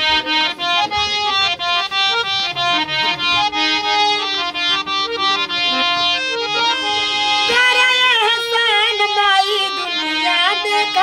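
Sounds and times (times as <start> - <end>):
harmonium melody over drone: 0.0 - 11.0
woman singing: 7.4 - 11.0.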